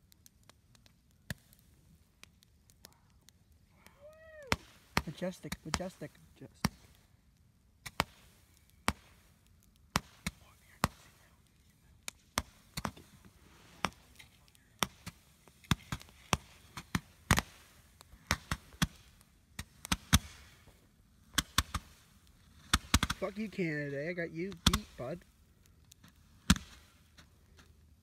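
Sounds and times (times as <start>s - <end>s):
fireworks bangs and cracks: 4.0s - 7.0s, 7.8s - 11.2s, 12.1s - 25.3s, 26.0s - 27.8s.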